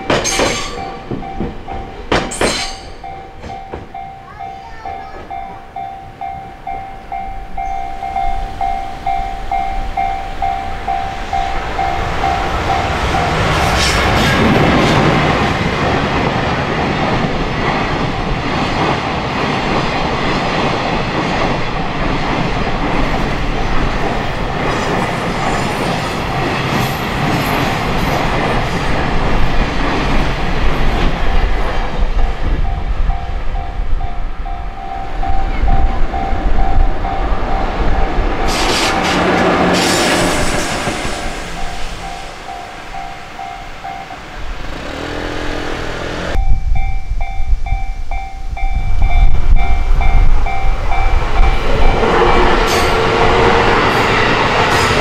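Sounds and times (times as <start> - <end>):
train wheels clattering: 0.0 - 4.1, 35.3 - 44.0
crossing warning bell dinging: 0.0 - 55.0.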